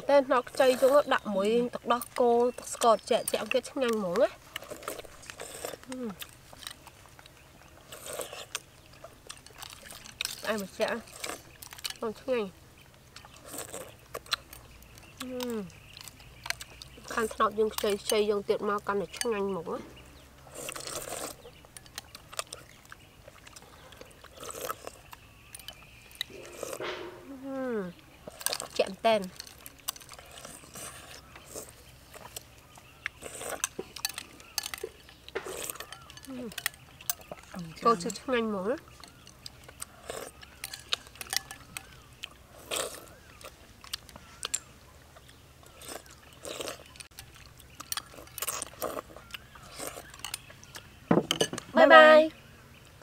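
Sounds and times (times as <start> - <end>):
mouth chewing sounds: 0.0 - 53.0
slurping from a spoon: 4.6 - 5.9, 20.5 - 21.6, 26.3 - 27.3.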